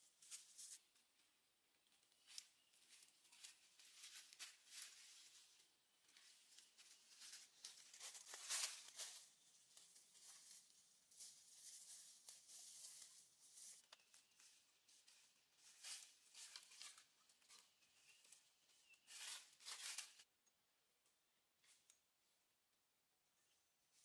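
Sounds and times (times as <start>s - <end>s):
footsteps crunching dry leaves: 2.2s - 5.6s, 6.2s - 17.6s.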